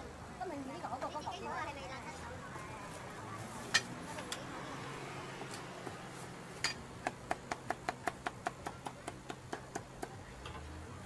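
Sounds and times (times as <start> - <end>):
cleaver chopping on wooden board: 7.0 - 10.2.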